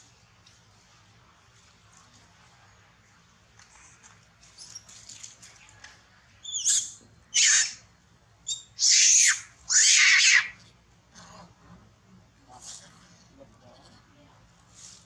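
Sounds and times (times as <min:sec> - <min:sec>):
soft squeaks: 0:03.7 - 0:05.8
monkeys screaming: 0:06.5 - 0:07.8, 0:08.5 - 0:10.6.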